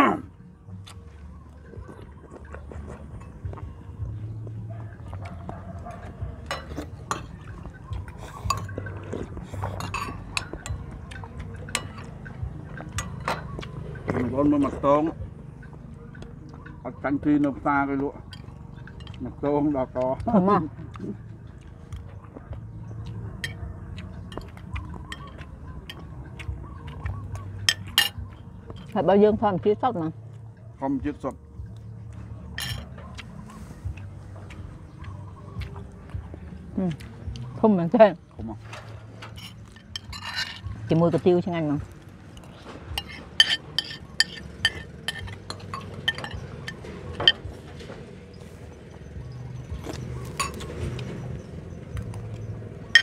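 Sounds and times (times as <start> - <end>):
low steady hum: 0.0 - 53.0
spoon clinking on ceramic plates: 6.5 - 7.6, 8.4 - 9.0, 9.7 - 10.9, 11.6 - 13.8, 24.3 - 26.1, 27.6 - 28.9, 32.6 - 32.9, 39.2 - 40.7, 42.4 - 47.4, 50.4 - 50.7.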